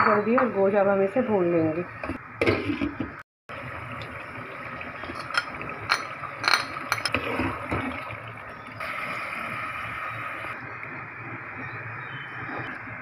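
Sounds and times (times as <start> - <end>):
water pouring into pot: 3.5 - 10.6
glass bowl clinking on metal pot: 5.1 - 7.2.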